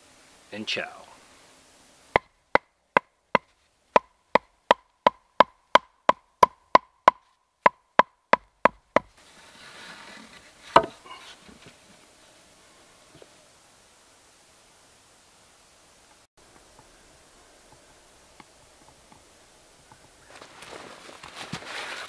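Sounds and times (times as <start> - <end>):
wooden club knocking on stakes: 2.1 - 9.2, 10.7 - 11.2
heavy log knock: 2.2 - 9.1, 10.7 - 11.1
rustling: 9.1 - 13.5, 16.0 - 22.0.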